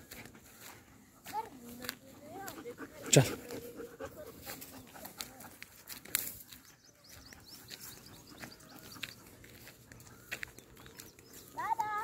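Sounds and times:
footsteps on dirt trail: 0.0s - 12.0s
dry grass rustling: 4.4s - 12.0s
bird chirps: 6.0s - 12.0s.

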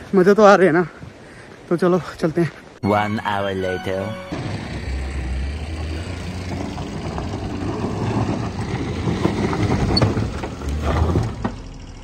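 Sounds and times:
car engine droning under load: 4.0s - 12.0s.

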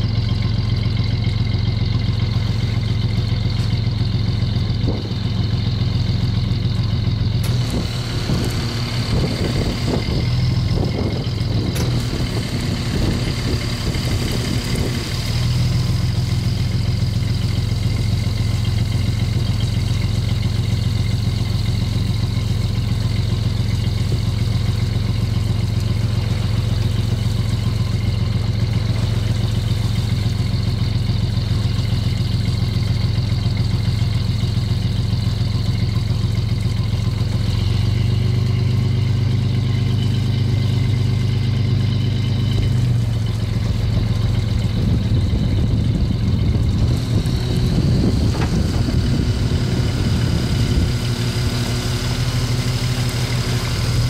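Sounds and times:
boat engine low hum: 0.0s - 54.0s.

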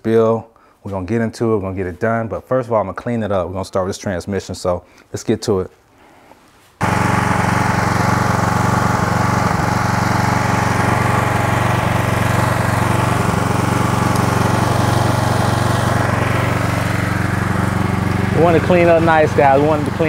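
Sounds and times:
pressure washer spray hissing: 6.8s - 20.0s.

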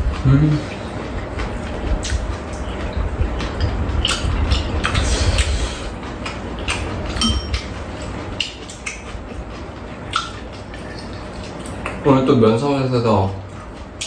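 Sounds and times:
utensils clinking against bowls: 3.5s - 9.1s.

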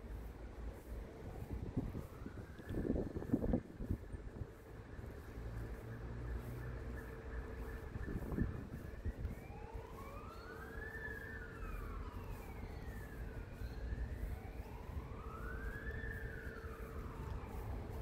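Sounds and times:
distant siren wailing: 0.0s - 18.0s.

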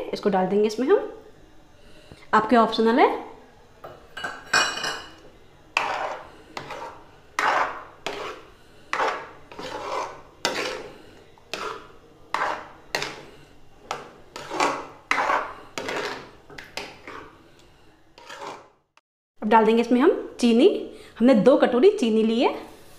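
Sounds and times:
spoon scraping batter in pan: 5.7s - 18.8s.

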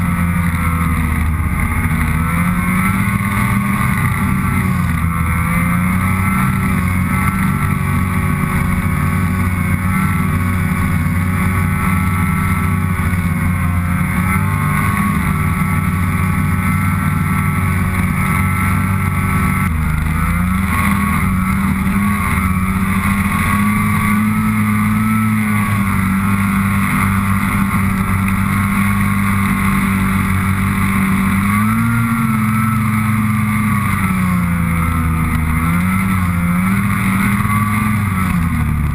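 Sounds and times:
snowmobile engine running: 0.0s - 38.9s.

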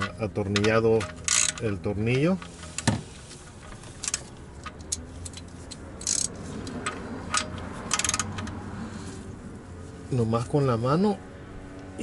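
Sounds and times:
ratchet clicking: 0.0s - 2.9s, 3.5s - 8.6s.

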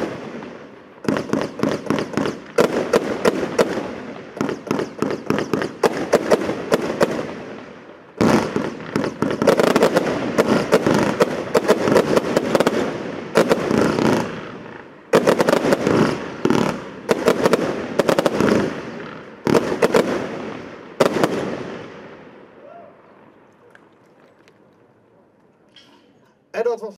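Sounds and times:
firework volleys of sharp bangs: 0.0s - 24.8s
crackling aerial bursts: 8.2s - 26.2s.

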